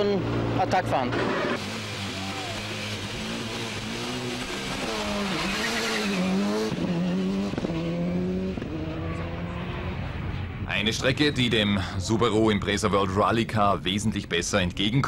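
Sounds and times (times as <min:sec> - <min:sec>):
rally car engine revving: 0:00.0 - 0:10.6
rushing noise of passing car: 0:00.2 - 0:10.8.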